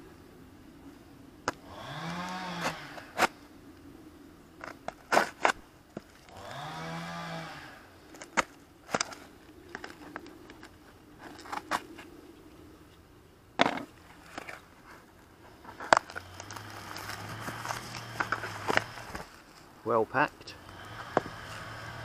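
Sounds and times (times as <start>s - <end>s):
plastic and cardboard crackling: 8.1s - 12.1s, 13.6s - 19.7s.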